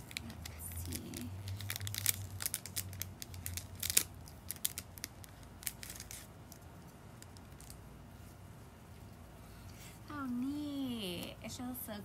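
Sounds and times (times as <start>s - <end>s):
paper card crinkling: 0.0s - 7.8s.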